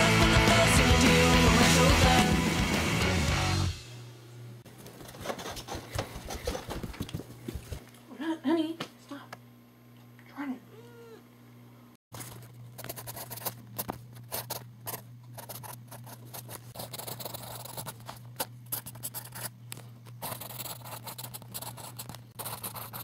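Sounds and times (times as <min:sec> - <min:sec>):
pencil scratching on paper: 0:05.0 - 0:06.7, 0:12.8 - 0:19.5, 0:20.2 - 0:23.0.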